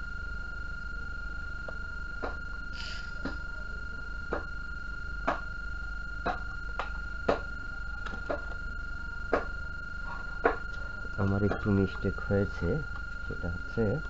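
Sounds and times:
high-pitched electronic tone: 0.0 - 14.0
low mains hum: 0.0 - 14.0.

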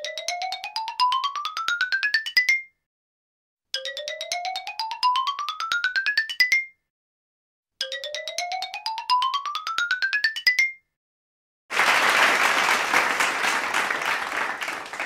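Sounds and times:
people applauding: 11.7 - 15.0.

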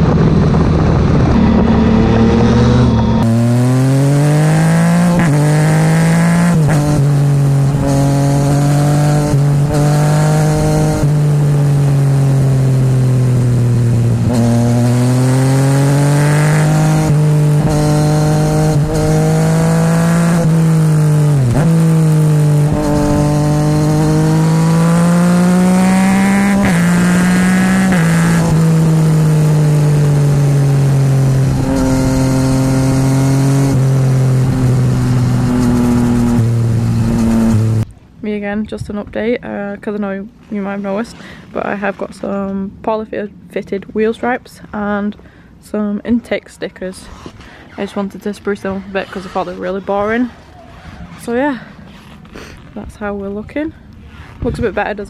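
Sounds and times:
motorcycle engine accelerating: 0.0 - 37.9
wind and road noise: 0.0 - 55.0.

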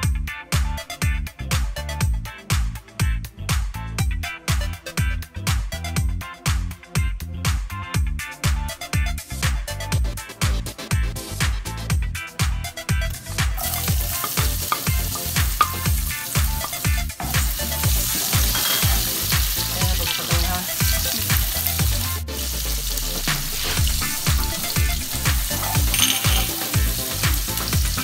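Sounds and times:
background music with steady beat: 0.0 - 28.0
onion sizzling in a frying pan: 13.6 - 28.0
spatula stirring in pan: 13.6 - 28.0.

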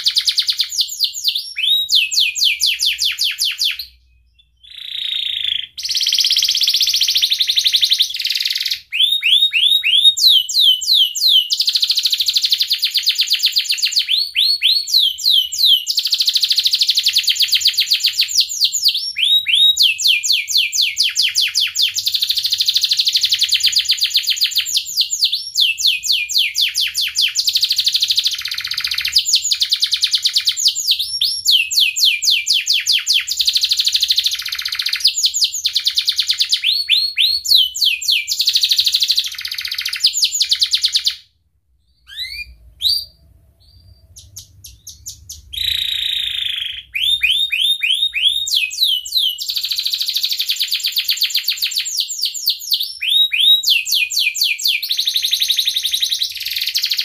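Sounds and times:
canary singing trills: 0.0 - 41.2, 41.8 - 57.0
short bird chirps: 3.7 - 10.4, 41.8 - 50.3.

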